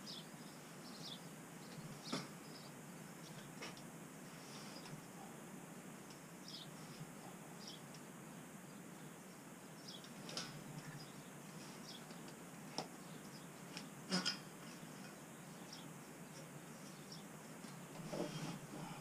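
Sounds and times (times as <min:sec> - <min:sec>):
insulation rustling and scratching: 0:13.6 - 0:19.0.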